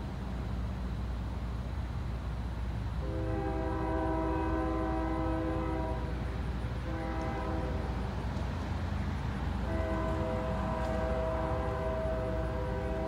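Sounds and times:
locomotive air horn: 3.0 - 8.0, 9.6 - 13.0.

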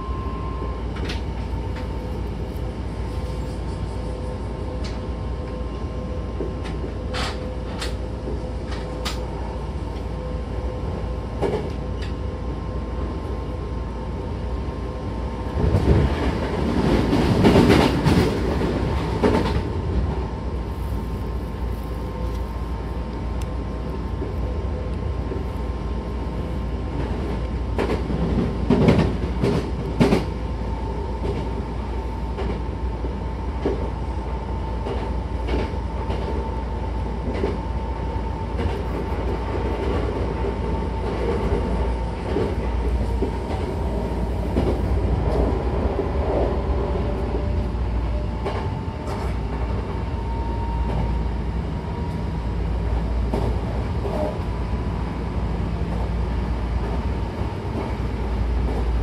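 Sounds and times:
train wheels rumbling on rails: 0.0 - 59.0
rail-joint clacks: 6.4 - 9.3.

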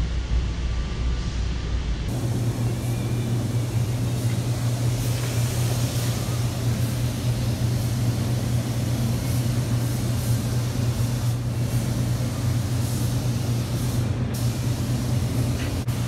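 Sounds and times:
ventilation hum: 0.0 - 16.0
spray gun hissing: 2.1 - 16.0.

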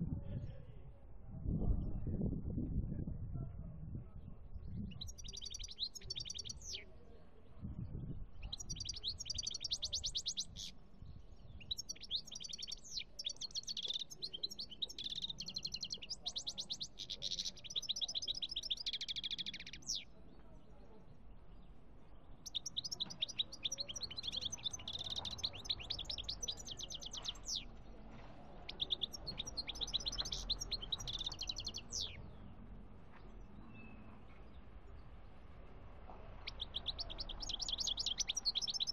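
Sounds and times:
bird twittering song: 4.6 - 32.5, 36.4 - 38.9.

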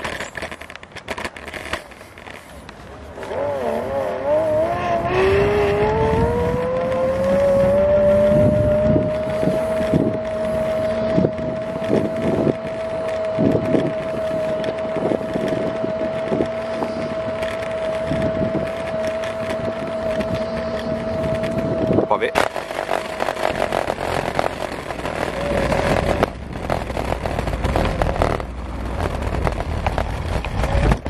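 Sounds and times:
electric scooter motor whining: 1.7 - 31.0.

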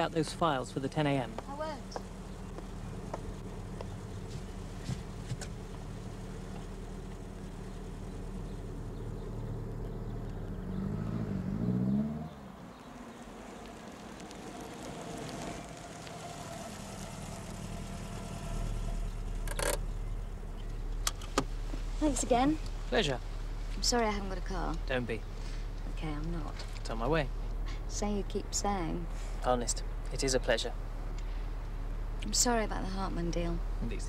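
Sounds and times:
car engine revving: 0.0 - 34.0
engine hum inside moving car: 0.0 - 34.0.

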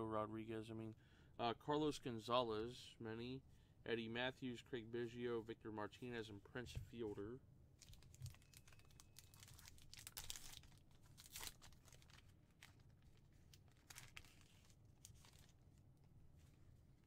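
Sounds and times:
wrapper tearing and crinkling: 7.8 - 15.6.

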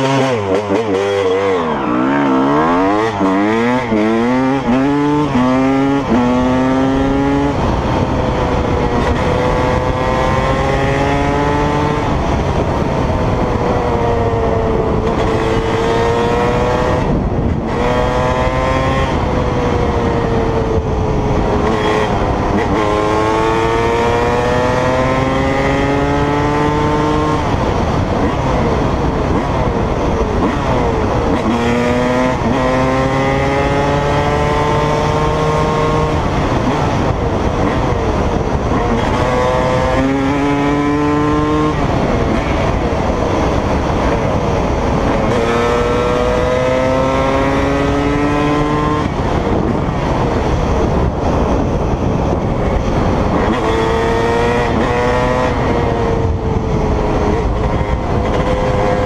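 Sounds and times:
dirt bike engine revving through gears: 0.0 - 12.7, 30.4 - 37.0, 37.6 - 50.0.

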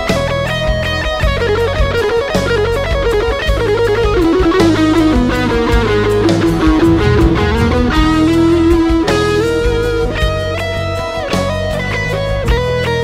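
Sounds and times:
drums: 0.0 - 13.0
distorted electric guitar lead: 4.8 - 9.9
steady bass: 5.0 - 9.7.

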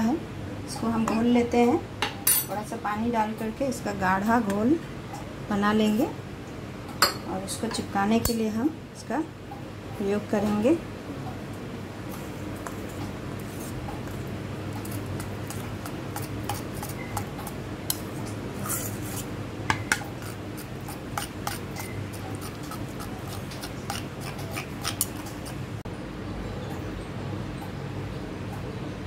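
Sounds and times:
spoon scraping a steel bowl: 14.8 - 19.3, 19.9 - 25.6.

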